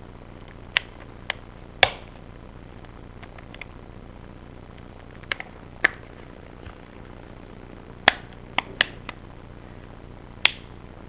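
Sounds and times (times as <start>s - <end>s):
sharp plastic clicks: 8.0s - 9.2s, 10.4s - 10.7s.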